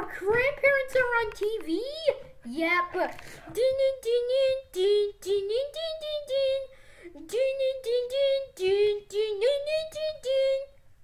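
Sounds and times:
child singing high notes: 3.5s - 10.8s.

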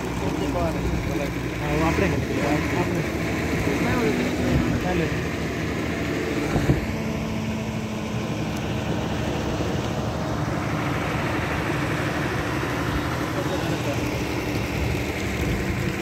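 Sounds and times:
floodwater rushing: 0.0s - 16.0s.

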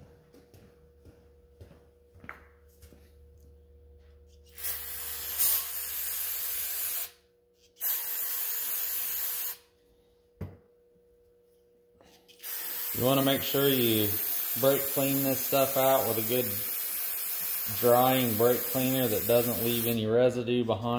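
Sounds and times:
aerosol spray hissing: 4.5s - 7.1s, 7.8s - 9.6s, 12.4s - 20.0s.

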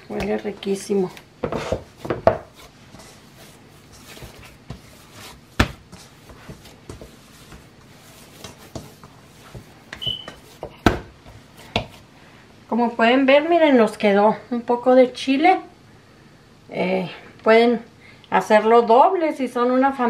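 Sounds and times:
hands kneading and slapping dough: 0.0s - 12.1s.

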